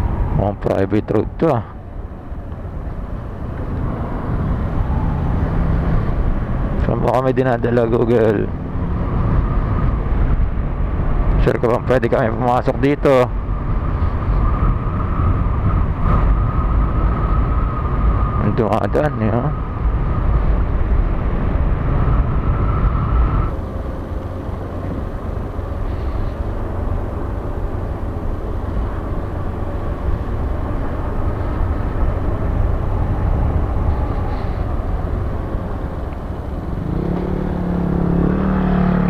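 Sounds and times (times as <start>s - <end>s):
wind noise on microphone: 8.6s - 39.0s
steady whine: 22.0s - 39.0s.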